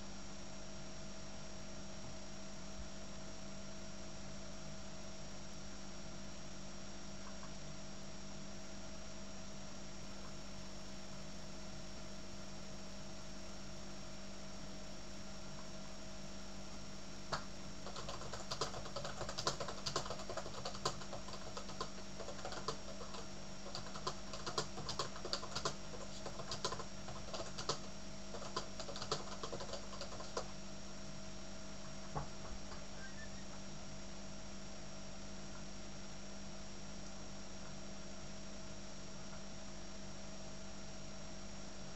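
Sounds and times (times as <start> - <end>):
steady hum: 1.4 - 39.6
keyboard typing clicks: 17.3 - 30.5.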